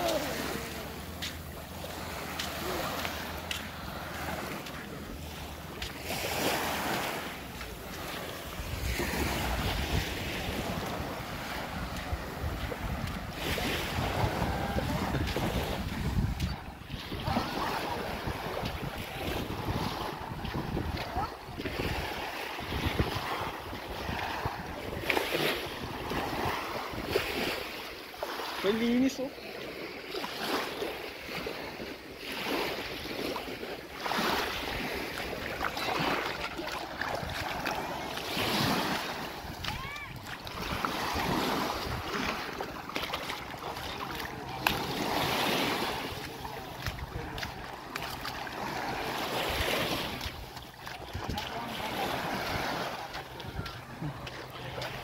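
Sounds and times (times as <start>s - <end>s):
surf washing on beach: 0.0s - 55.0s
wind buffeting microphone: 8.5s - 27.7s, 48.6s - 51.6s.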